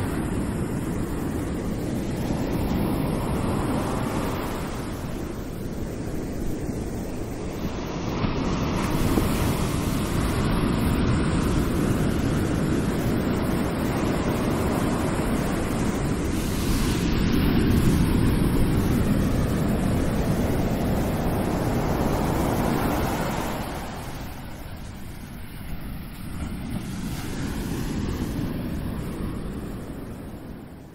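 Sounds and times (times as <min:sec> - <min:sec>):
ocean waves washing: 0:00.0 - 0:30.9.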